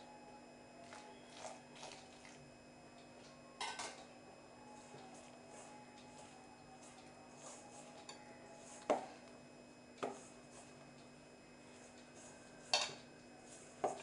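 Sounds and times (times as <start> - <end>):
hands kneading dough: 4.6 - 14.0.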